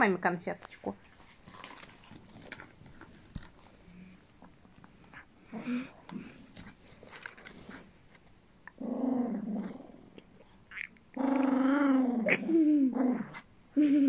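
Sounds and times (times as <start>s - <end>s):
small dog growling: 8.7s - 13.5s.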